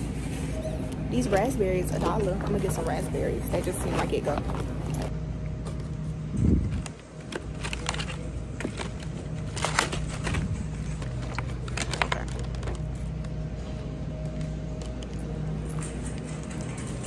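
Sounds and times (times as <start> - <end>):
steady low hum: 0.0 - 17.0
plastic packaging crinkling: 6.6 - 13.3.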